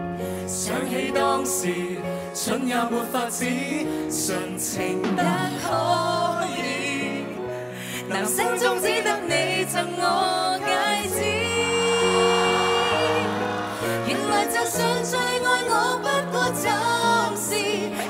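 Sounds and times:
pop ballad sung live: 0:00.3 - 0:18.0
band accompaniment: 0:04.8 - 0:06.0.

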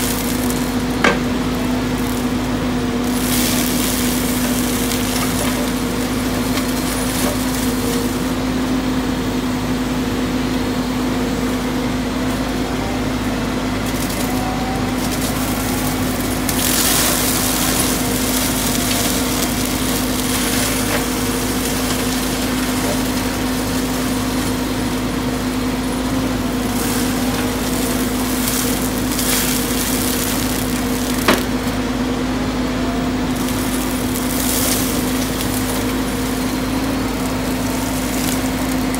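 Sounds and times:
wood crunching and splintering: 0:00.0 - 0:09.7, 0:11.9 - 0:32.2, 0:33.1 - 0:38.9
brush mulcher humming: 0:00.0 - 0:38.9.

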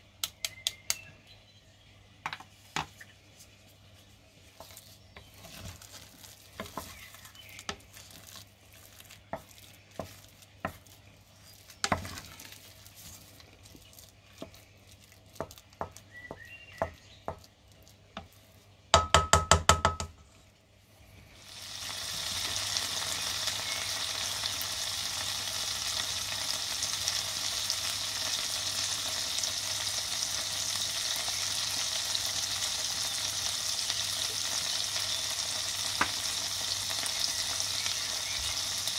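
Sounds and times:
wooden spoon stirring mashed potatoes: 0:03.4 - 0:18.9
liver sizzling in a pan: 0:05.4 - 0:13.3, 0:21.4 - 0:38.9
spoon knocking against pot: 0:19.0 - 0:20.1.

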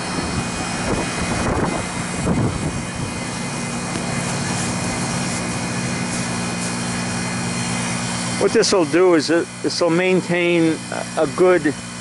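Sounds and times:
even rushing noise: 0:00.0 - 0:08.6
compressor humming: 0:00.0 - 0:12.0.

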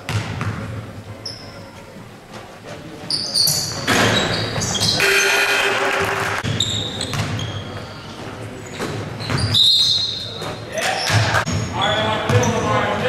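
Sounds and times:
basketball bouncing: 0:00.0 - 0:00.8, 0:06.0 - 0:07.6
sneakers squeaking on hardwood: 0:00.0 - 0:12.8.

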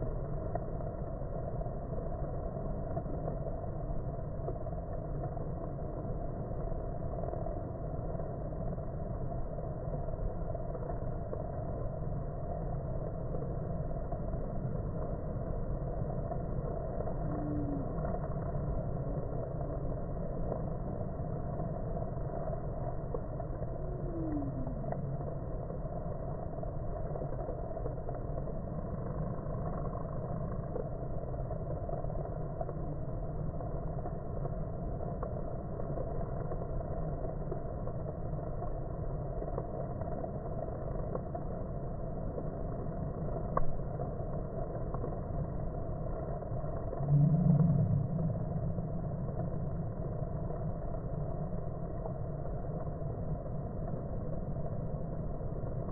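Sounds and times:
sharp tick: 0:43.4 - 0:43.8.

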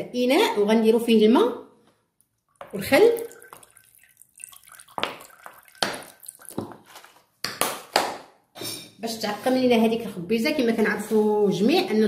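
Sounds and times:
vinegar pouring into water: 0:02.5 - 0:06.9.

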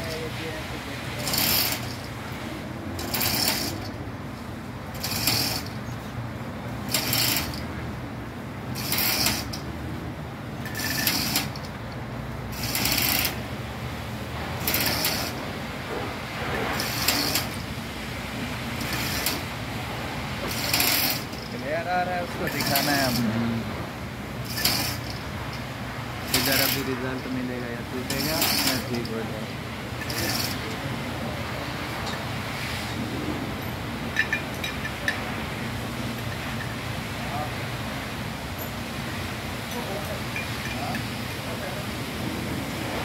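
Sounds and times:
lifting gear mechanical rasp: 0:01.2 - 0:02.0, 0:03.0 - 0:04.0, 0:04.9 - 0:05.8, 0:06.9 - 0:07.7, 0:08.8 - 0:09.7, 0:10.6 - 0:11.7, 0:12.5 - 0:13.4, 0:14.6 - 0:15.4, 0:16.7 - 0:17.7, 0:18.8 - 0:19.5, 0:20.4 - 0:21.5, 0:22.4 - 0:23.4, 0:24.4 - 0:25.2, 0:26.2 - 0:27.1, 0:28.0 - 0:29.1, 0:30.0 - 0:30.7.

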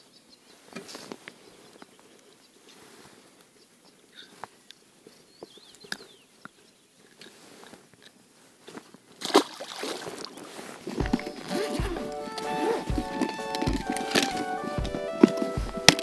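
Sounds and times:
fish splashing into water: 0:09.2 - 0:10.4
water noise: 0:09.2 - 0:16.0
low thumps: 0:11.0 - 0:16.0.

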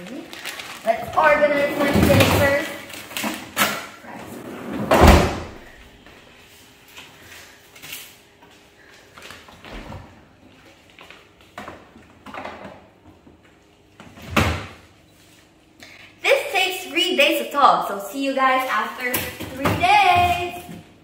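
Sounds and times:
freezer drawer sliding shut: 0:04.5 - 0:05.6.

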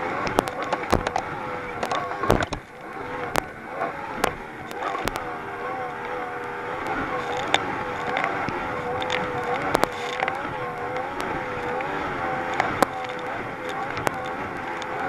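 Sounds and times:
outboard boat engine running hard: 0:00.0 - 0:15.0
sharp knocks of boat hull: 0:02.2 - 0:02.7.

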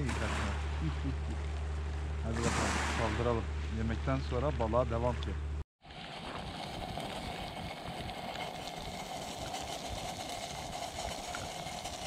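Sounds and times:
water boiling with rushing hiss: 0:05.8 - 0:12.0.

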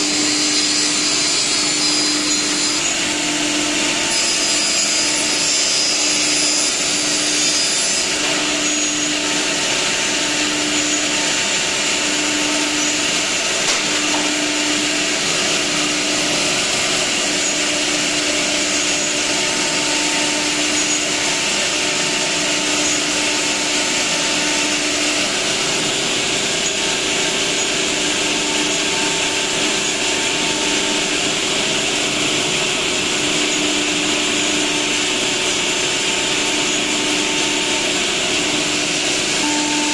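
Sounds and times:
cutting and dust extraction noise: 0:00.0 - 0:39.9
router spindle whine: 0:00.0 - 0:39.9
higher whine: 0:36.5 - 0:39.9.

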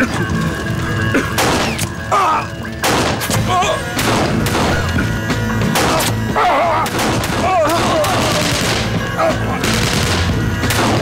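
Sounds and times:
dramatic background music: 0:00.0 - 0:11.0
pistol shots: 0:02.8 - 0:03.3, 0:09.6 - 0:11.0.

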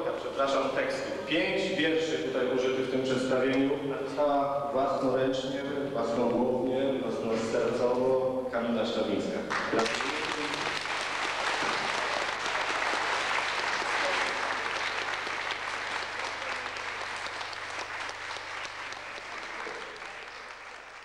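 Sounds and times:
people applauding: 0:09.5 - 0:21.0.

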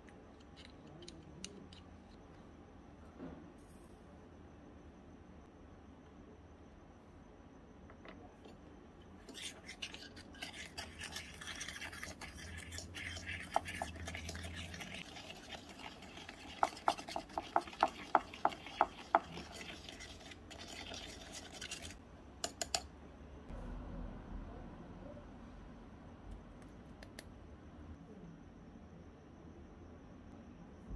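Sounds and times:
spoon scraping a metal bowl: 0:09.2 - 0:22.8
spoon clinking on bowl: 0:22.4 - 0:22.9.

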